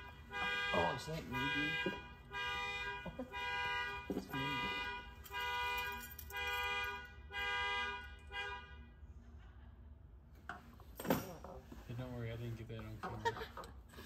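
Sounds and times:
car horn blasts: 0.0 - 9.1.

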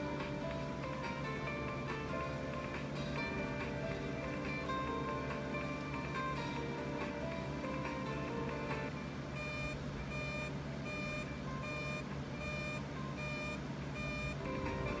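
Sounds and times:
background music on tv: 0.0 - 15.0
high electronic alert beeps: 9.4 - 15.0.

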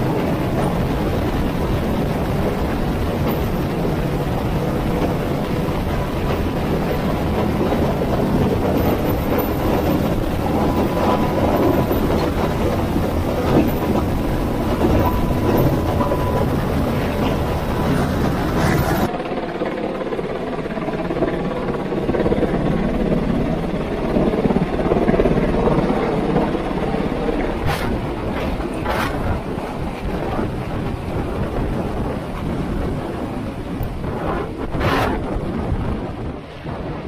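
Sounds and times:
helicopter hovering: 0.0 - 37.0.

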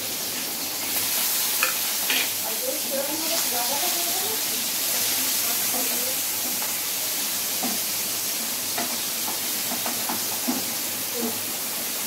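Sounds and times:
prawns sizzling in oil: 0.0 - 12.0
spatula knocking on pan: 8.7 - 10.7.

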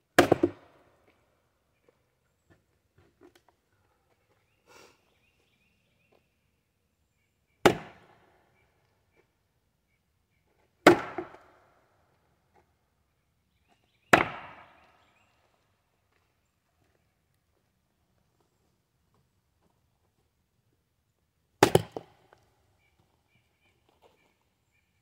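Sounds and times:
axe chopping into log: 0.2 - 0.7, 7.6 - 8.1, 10.8 - 11.5, 14.1 - 14.8, 21.6 - 22.2.

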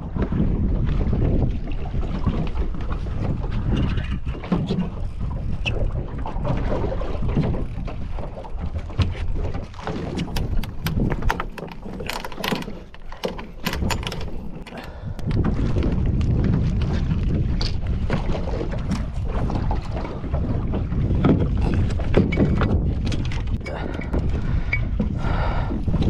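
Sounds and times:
wind buffeting microphone: 0.0 - 26.0
sharp clicks and knocks: 9.8 - 15.4.

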